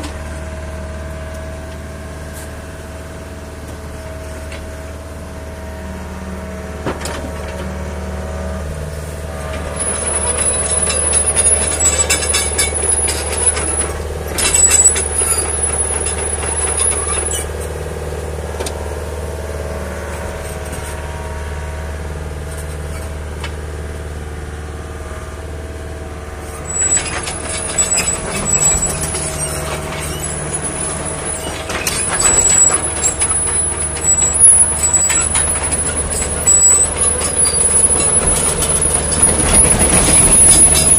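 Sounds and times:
excavator diesel engine running: 0.0 - 40.9
squeals and clanking of tracks: 9.3 - 17.9, 22.5 - 23.6, 26.4 - 40.9.

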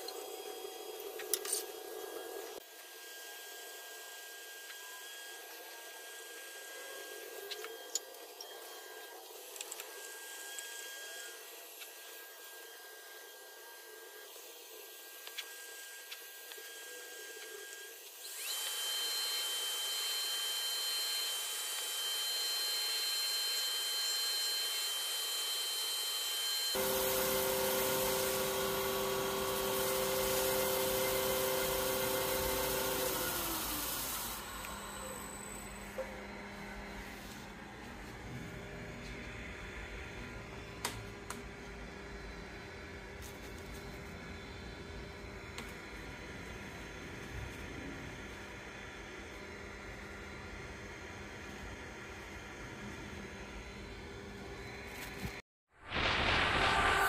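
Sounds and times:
wood lathe motor whine: 0.1 - 37.4.

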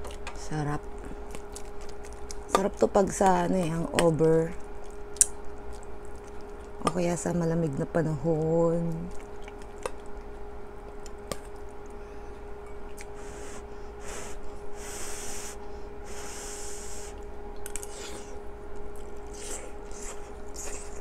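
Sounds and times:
person chewing: 0.0 - 3.8, 4.5 - 6.8, 8.9 - 14.2, 17.1 - 21.0
steady hum: 0.0 - 21.0
airy hisses at the mouth: 13.2 - 17.2.

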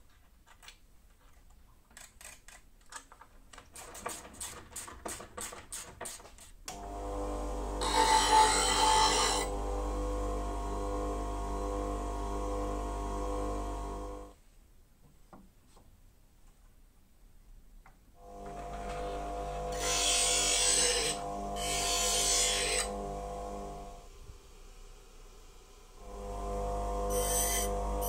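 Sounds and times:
bench grinder motor humming: 6.7 - 14.3, 18.2 - 28.0
chisel grinding on wheel: 7.8 - 9.5, 19.7 - 23.0.

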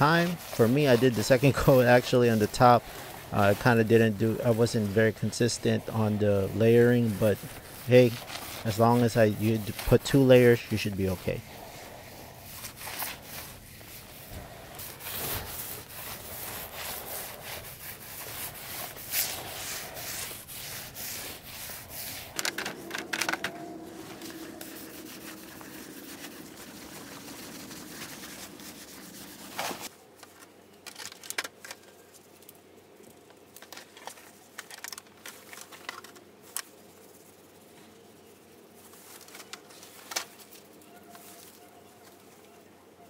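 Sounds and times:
paint roller rubbing on concrete: 0.0 - 29.9
faint steady hum: 0.0 - 43.0.

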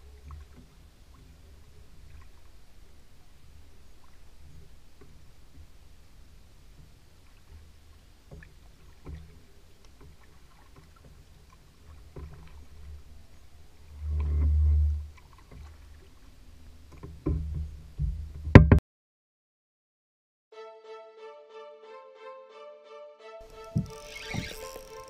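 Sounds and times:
kayak paddle pulling through water: 0.0 - 18.4, 23.4 - 25.0
small splashes and drips: 0.1 - 2.7, 6.7 - 13.9, 15.1 - 17.4.

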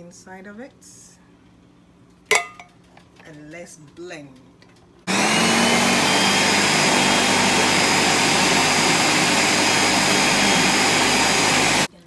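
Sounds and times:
blender running: 5.1 - 11.9.

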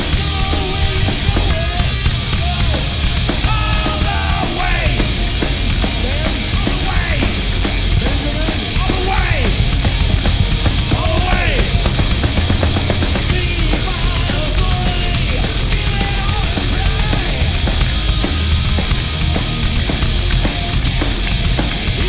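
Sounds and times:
man singing: 0.0 - 5.2, 6.0 - 9.6, 10.9 - 11.8, 13.2 - 17.8
distorted electric guitar: 0.0 - 22.0
drums and cymbals: 0.0 - 22.0
heavy metal band playing: 0.0 - 22.0.

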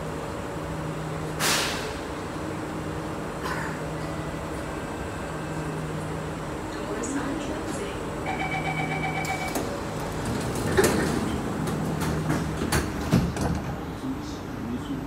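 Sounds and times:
sliding train doors closing: 0.8 - 2.4, 9.1 - 14.0
rapid warning beeping: 8.3 - 9.7.

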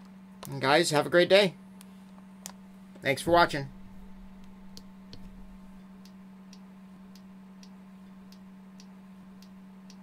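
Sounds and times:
steady low hum: 0.0 - 10.0
faint regular ticking: 4.4 - 10.0.

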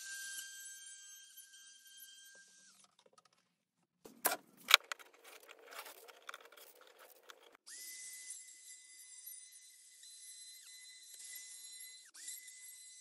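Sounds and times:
plastic wrapper rustling: 4.1 - 7.6.

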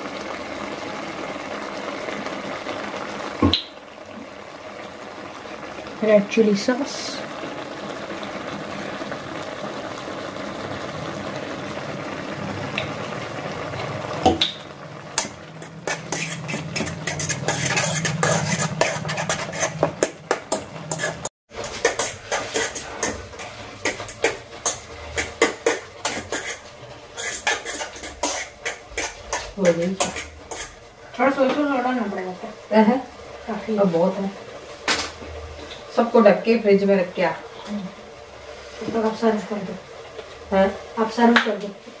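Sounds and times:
noodles simmering with hiss: 0.0 - 42.0
spoon stirring and scraping pan: 13.8 - 32.3.

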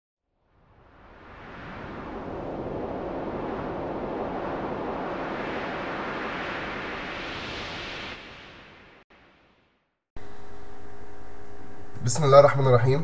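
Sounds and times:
wind-like rushing noise: 0.5 - 9.6.

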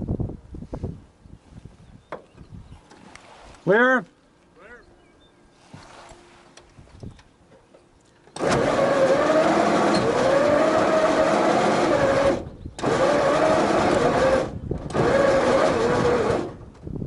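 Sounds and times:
aircraft engine starting and running: 8.3 - 16.8.

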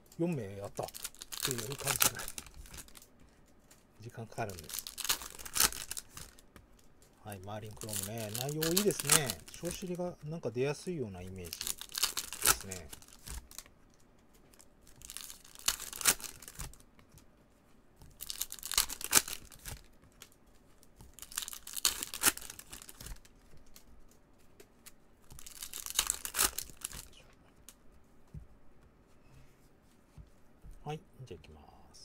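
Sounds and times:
foil wrappers tearing and crinkling: 0.2 - 3.1, 4.1 - 10.4, 11.2 - 13.7, 14.5 - 16.8, 18.0 - 24.2, 24.8 - 27.2.

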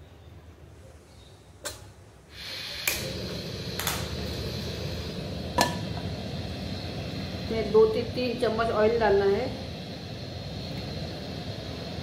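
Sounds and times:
stove click: 1.6 - 1.9, 2.8 - 4.2, 5.6 - 6.1.

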